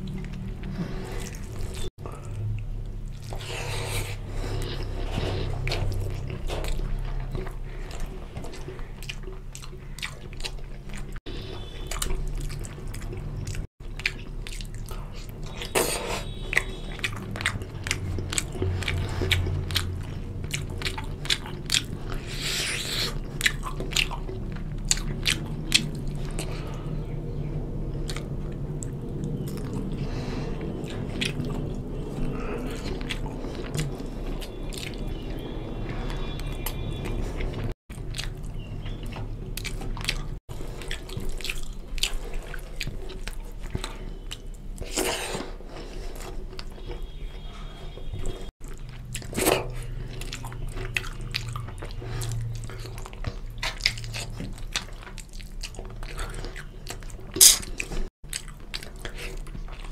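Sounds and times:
close-up chewing: 0.0 - 59.9
wet mouth clicks and smacks: 48.9 - 59.6.

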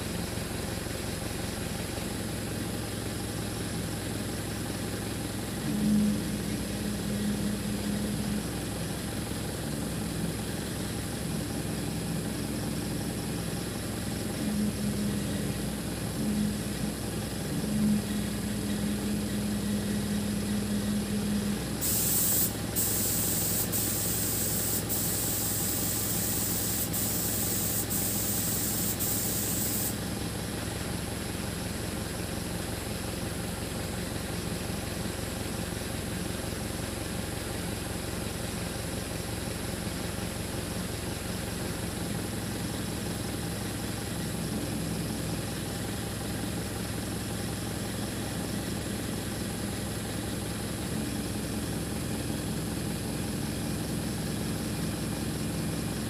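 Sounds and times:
truck engine idling: 0.0 - 56.0
loud hiss: 21.8 - 30.0.

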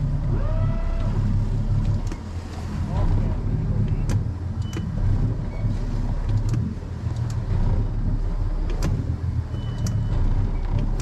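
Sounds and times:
boat engine rumbling: 0.0 - 11.0
light clicks and knocks: 8.6 - 11.0.

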